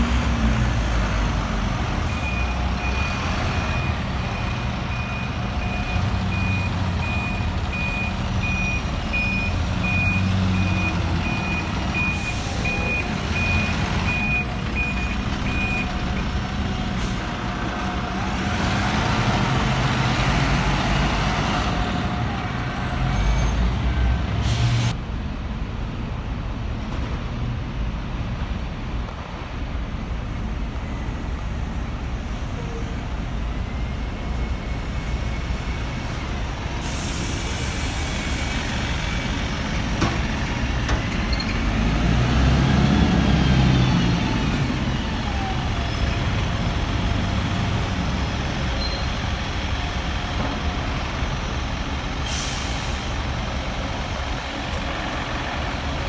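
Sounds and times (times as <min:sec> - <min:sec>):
bus diesel engines passing: 0:00.0 - 0:56.0
air brakes hissing: 0:36.1 - 0:39.4, 0:52.2 - 0:53.4.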